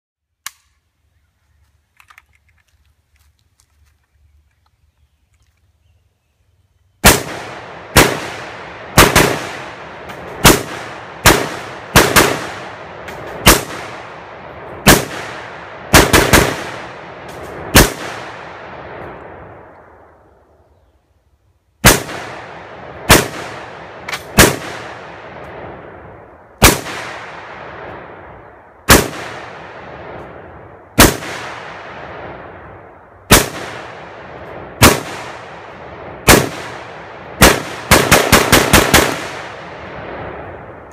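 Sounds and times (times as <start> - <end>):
rifle gunshots with echo: 7.0 - 19.7, 21.8 - 40.9.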